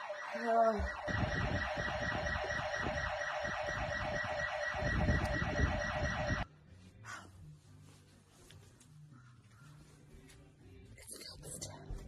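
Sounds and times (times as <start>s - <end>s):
alarm siren warbling: 0.0s - 6.4s.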